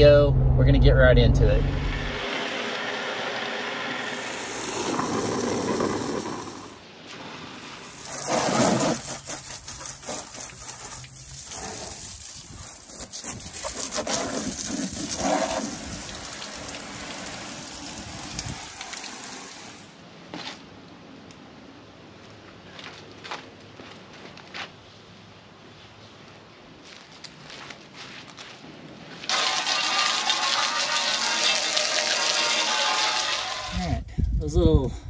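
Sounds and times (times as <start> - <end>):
hose water splashing: 2.1 - 20.0, 29.3 - 33.9.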